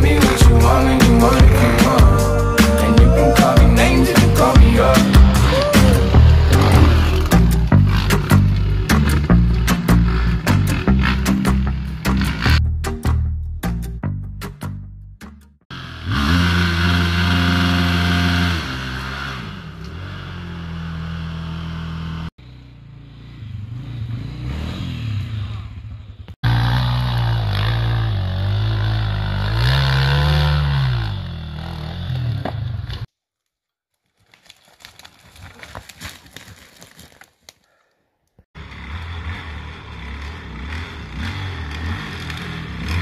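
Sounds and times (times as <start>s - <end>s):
dirt bike engine revving: 0.0s - 12.6s, 15.7s - 33.1s, 38.6s - 43.0s.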